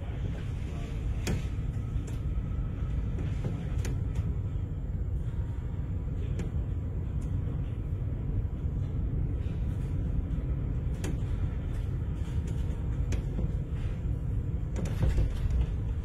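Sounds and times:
steady low rumble: 0.0s - 16.0s
sharp clicks and knocks: 14.6s - 16.0s.

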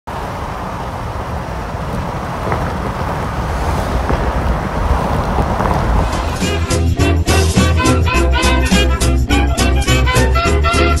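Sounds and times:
car road and wind noise: 0.1s - 8.4s.

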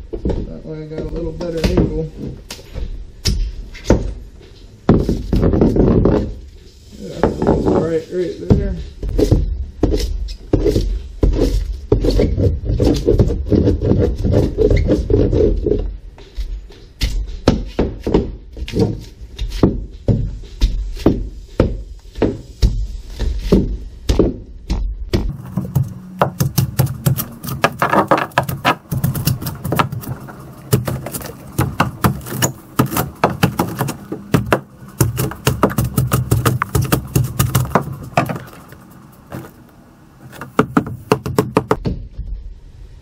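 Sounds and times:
hand tool chopping foam: 25.1s - 39.5s.

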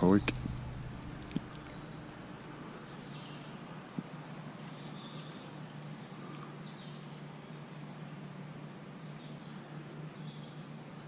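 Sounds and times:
faint high bird chirps: 0.0s - 7.1s.

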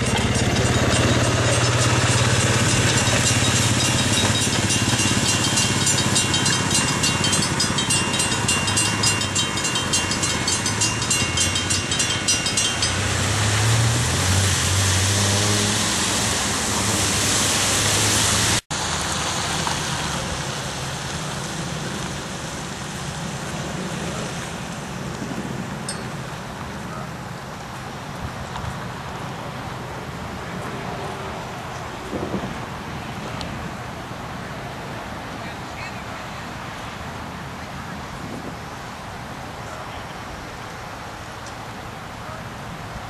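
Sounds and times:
railway crossing bell ringing: 0.0s - 14.6s, 25.8s - 26.3s
track speeder engines running: 0.0s - 18.6s.

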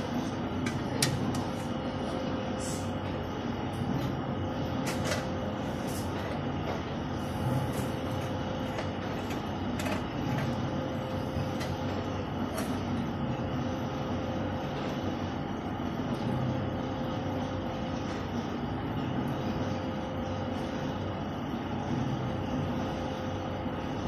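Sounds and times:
mechanical rumble with low hum: 0.0s - 24.0s.

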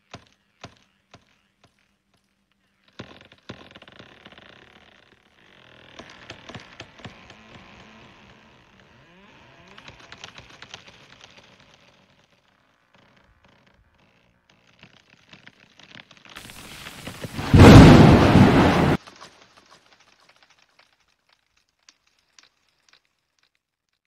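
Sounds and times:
tree creaking and rustling: 0.0s - 23.7s
tree crashing down: 16.4s - 19.2s.

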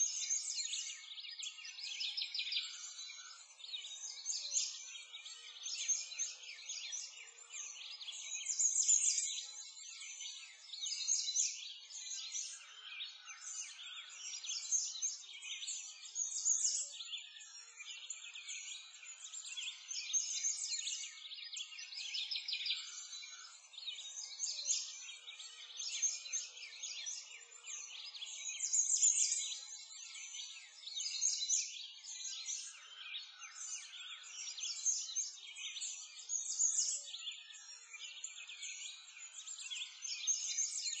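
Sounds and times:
small birds chirping: 0.0s - 41.0s.

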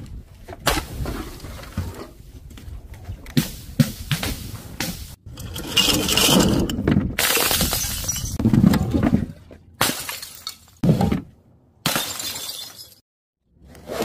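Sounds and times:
glass bottles smashing: 7.2s - 8.4s, 9.8s - 10.7s, 11.8s - 13.0s
glass crunching: 7.2s - 8.4s.

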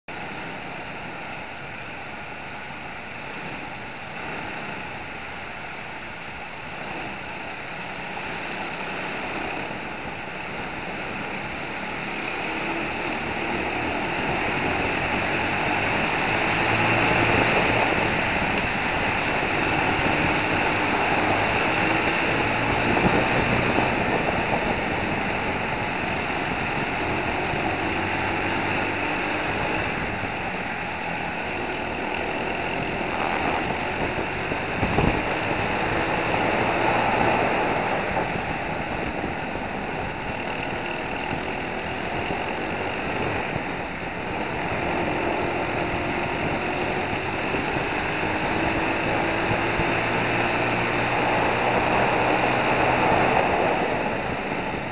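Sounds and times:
kart engines racing: 0.2s - 54.9s
wind on microphone: 9.7s - 31.4s, 32.0s - 54.9s.

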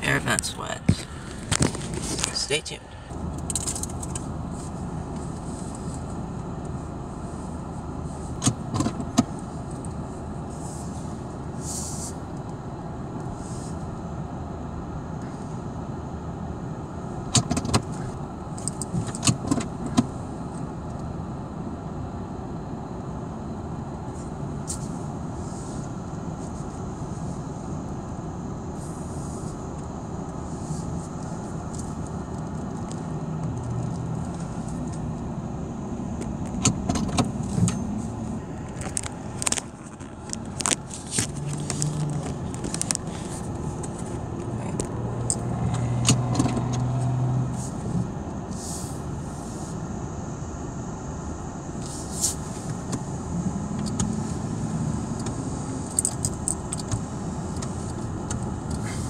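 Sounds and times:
car engine and road noise: 0.0s - 59.0s
sharp clicks and rattles: 3.1s - 4.3s, 38.6s - 46.8s.

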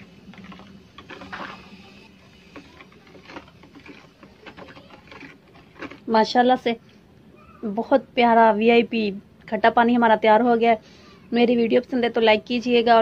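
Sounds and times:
spoon stirring water in bowl: 0.0s - 6.4s.

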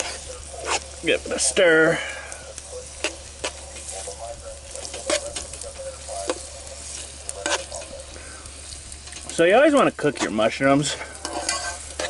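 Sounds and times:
utensil scraping pan: 0.0s - 1.5s, 4.8s - 5.6s, 6.2s - 8.0s, 9.0s - 12.0s
food sizzling in oil: 0.0s - 12.0s.

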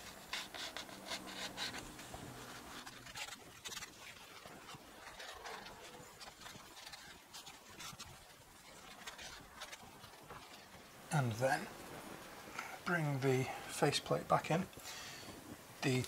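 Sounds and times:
cloth rubbing on metal: 0.0s - 13.1s.

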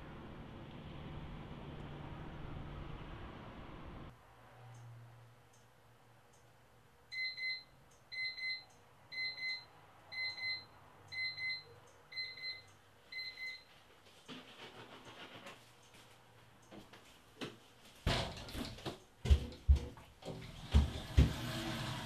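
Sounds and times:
alarm clock double beeps: 7.1s - 13.7s.

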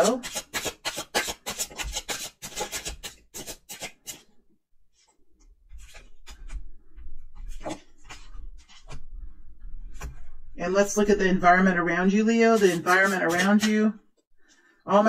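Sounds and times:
cards being shuffled: 0.0s - 4.3s, 5.7s - 6.6s.

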